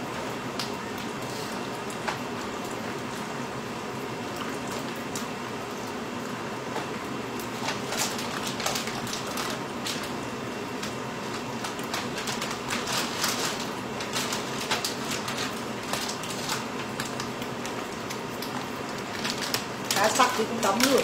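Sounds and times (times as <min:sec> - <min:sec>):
plastic bags crinkling: 0:07.5 - 0:21.0.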